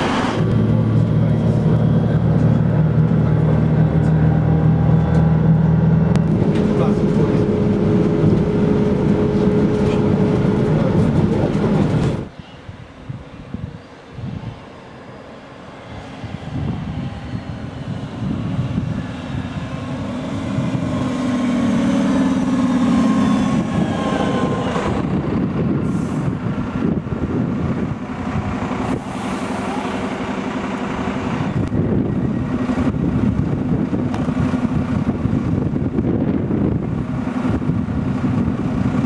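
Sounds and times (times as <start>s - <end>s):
train wheels on rails: 0.0s - 12.6s
diesel railcar engine: 0.0s - 39.0s
short air hisses: 28.9s - 30.0s.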